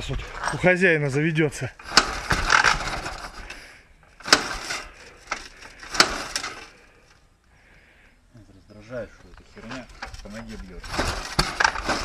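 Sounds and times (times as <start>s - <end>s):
engine turning over: 1.8s - 3.6s, 4.2s - 6.8s.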